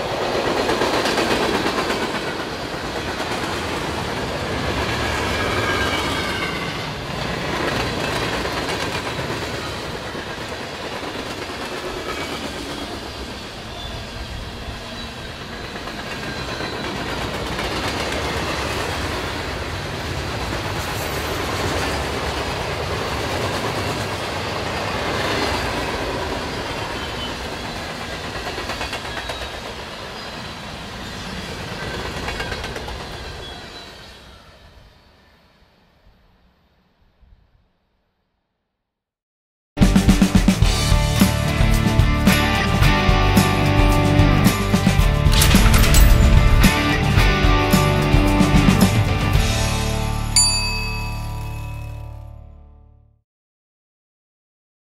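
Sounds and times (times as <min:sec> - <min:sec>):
train wheels rumbling and clacking: 0:00.0 - 0:30.2, 0:41.1 - 0:49.7
high wheel squeal: 0:05.4 - 0:06.8, 0:12.2 - 0:17.0.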